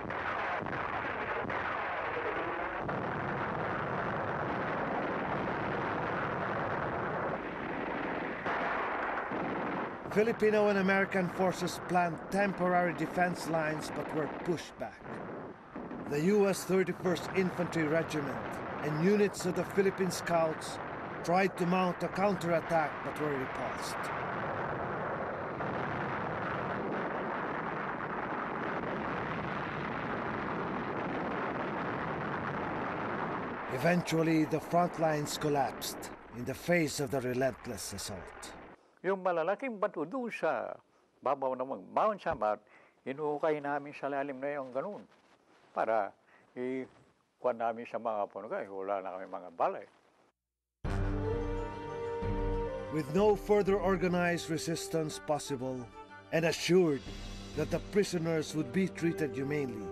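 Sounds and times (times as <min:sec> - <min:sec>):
dense battle rumble: 0:02.7 - 0:38.8.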